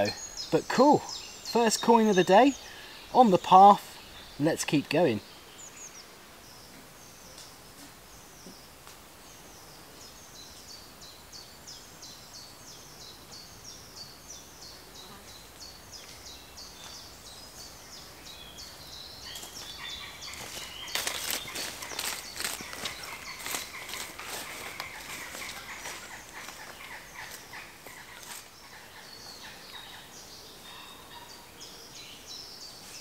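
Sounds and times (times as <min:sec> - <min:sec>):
small bird singing: 0:00.0 - 0:33.0
footsteps on stony path: 0:19.3 - 0:28.5.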